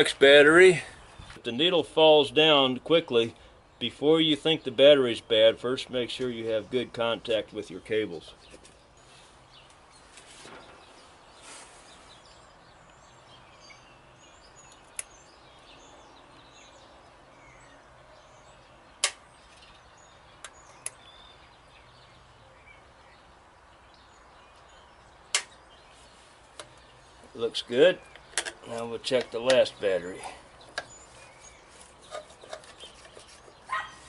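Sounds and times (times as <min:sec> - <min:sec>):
sharp clicks: 0:19.0 - 0:19.2, 0:25.3 - 0:25.6.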